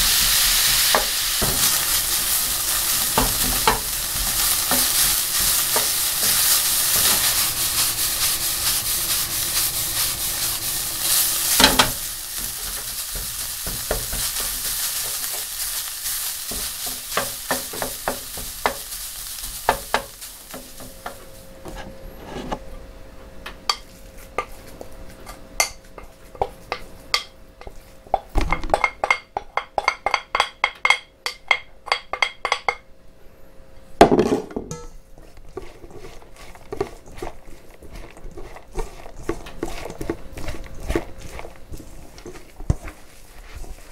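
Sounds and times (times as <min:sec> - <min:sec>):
food sizzling in frying pan: 0:00.0 - 0:21.6, 0:35.2 - 0:43.9.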